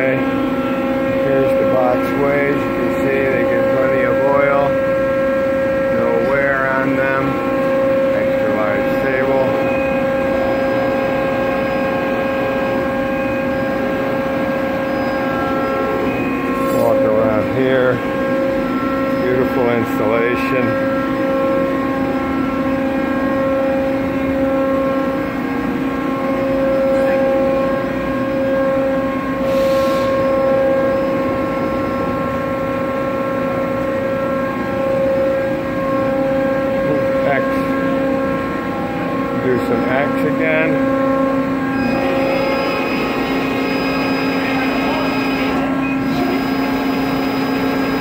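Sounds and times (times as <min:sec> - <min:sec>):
machine hum with whine: 0:00.0 - 0:48.0.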